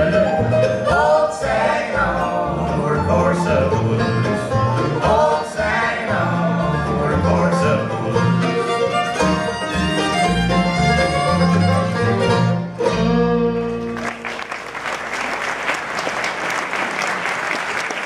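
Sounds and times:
bluegrass band playing: 0.0s - 15.4s
audience applause: 13.8s - 18.0s.

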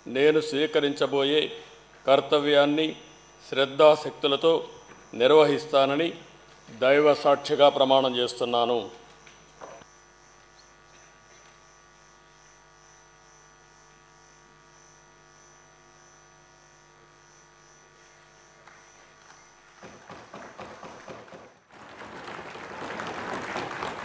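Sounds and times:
mains hum: 0.0s - 24.0s
people clapping: 19.9s - 24.0s.

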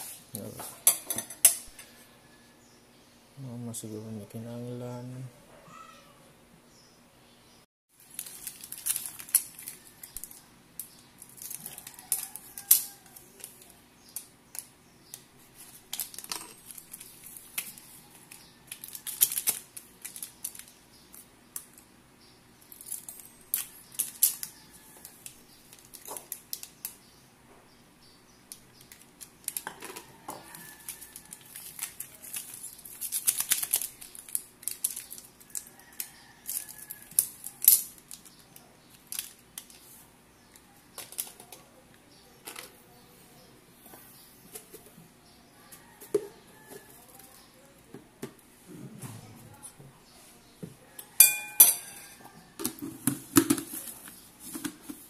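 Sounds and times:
plastic packets crinkling: 8.0s - 10.4s, 11.2s - 13.7s, 15.6s - 20.8s, 28.8s - 39.9s.

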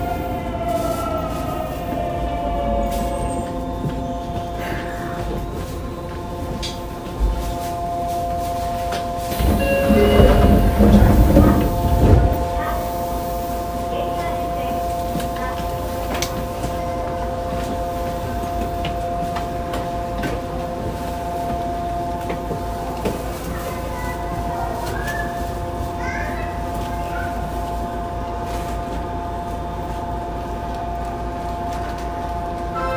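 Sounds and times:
train equipment humming: 0.0s - 32.9s
low rumble with clatter: 8.9s - 13.2s.

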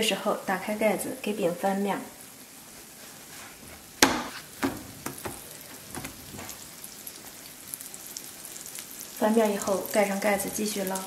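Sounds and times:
oil sizzling on griddle: 0.1s - 11.0s
spatula taps: 4.0s - 6.6s.

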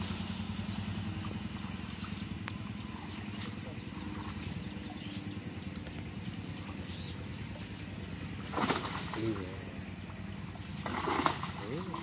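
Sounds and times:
bird chirps: 0.0s - 8.4s
low motor drone: 0.0s - 12.0s.

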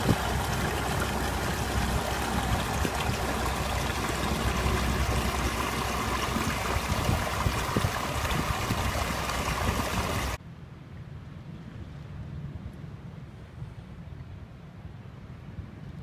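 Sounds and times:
water churning in propeller wash: 0.0s - 10.4s.

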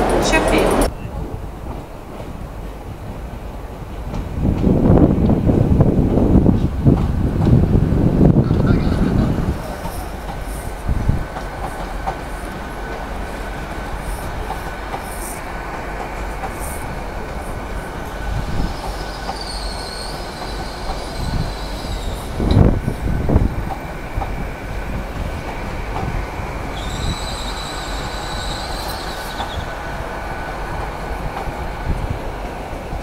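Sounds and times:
train rumbling: 0.0s - 33.0s
high-pitched train squeal: 18.2s - 22.4s, 26.7s - 29.9s.

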